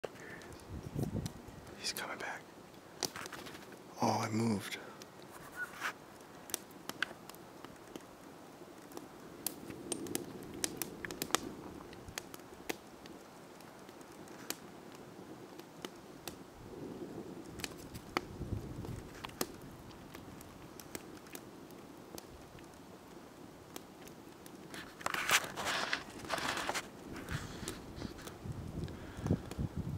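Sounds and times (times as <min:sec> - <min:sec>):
sharp clicks and crackles: 0:02.7 - 0:03.8, 0:05.1 - 0:14.7, 0:17.5 - 0:22.9, 0:23.7 - 0:29.6.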